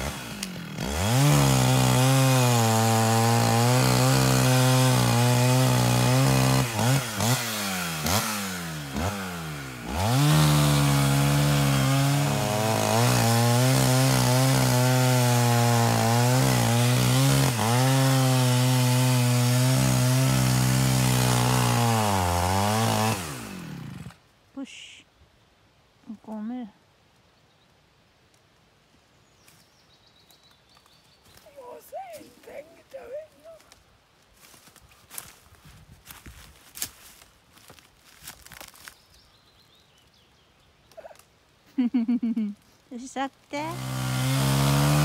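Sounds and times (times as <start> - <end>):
chainsaw cutting wood: 0.0 - 24.2, 43.4 - 45.0.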